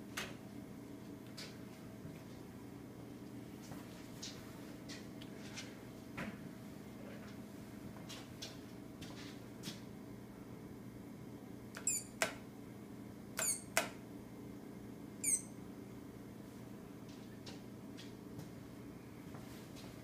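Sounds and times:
digital timer beeping: 0:15.2 - 0:15.5.

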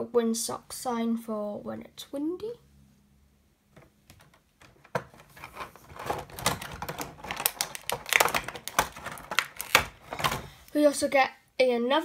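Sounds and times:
packaging rustling: 0:04.1 - 0:10.7
plastic toy pieces clicking: 0:06.0 - 0:10.4.

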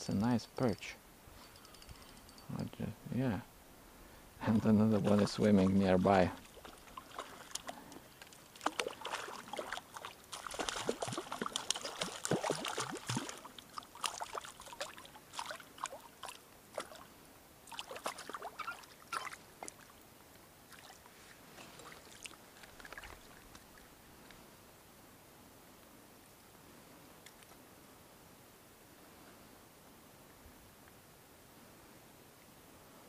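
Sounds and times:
water splashing and sloshing: 0:04.4 - 0:24.4.

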